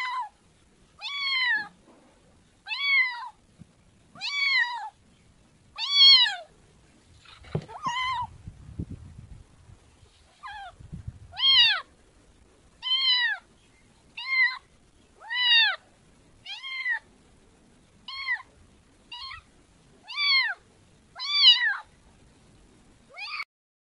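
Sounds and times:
kitten meowing: 1.0s - 1.7s, 2.7s - 3.4s, 4.2s - 4.9s, 5.8s - 6.5s, 7.7s - 8.3s, 11.4s - 11.9s, 12.8s - 13.4s, 14.2s - 14.6s, 15.2s - 15.8s, 16.5s - 17.0s, 18.1s - 18.5s, 19.1s - 19.5s, 20.1s - 20.6s, 21.2s - 21.9s, 23.1s - 23.4s.

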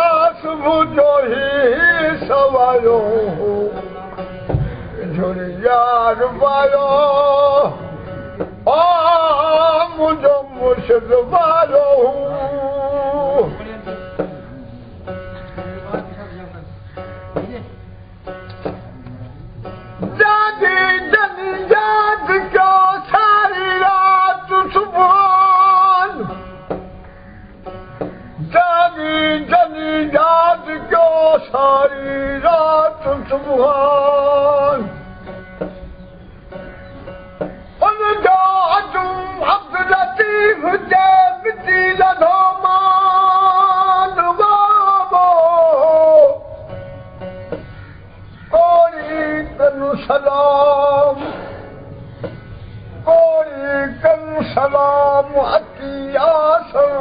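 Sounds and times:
man singing folk song: 0.0s - 14.4s, 19.6s - 26.8s, 28.0s - 35.3s, 37.4s - 46.9s, 48.4s - 51.6s, 53.0s - 57.0s
plucked string instrument drone: 0.0s - 57.0s.

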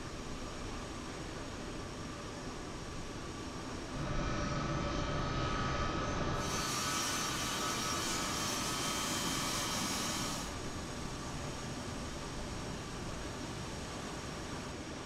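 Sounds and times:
jet engines running: 3.5s - 15.0s.

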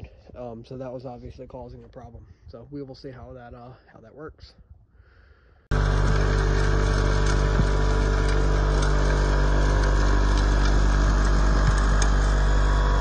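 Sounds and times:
salt ticking on pavement: 5.7s - 13.0s
spreader mechanical hum: 5.7s - 13.0s.

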